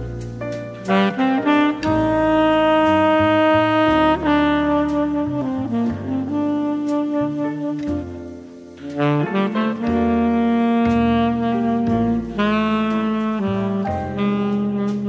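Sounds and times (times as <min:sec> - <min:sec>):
low bass accompaniment: 0:00.0 - 0:15.0
tenor saxophone jazz ballad: 0:00.0 - 0:15.0.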